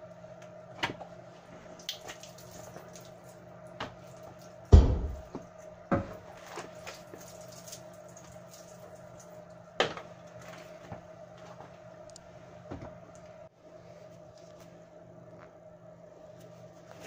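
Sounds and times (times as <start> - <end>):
heavy thump: 4.7 - 5.3.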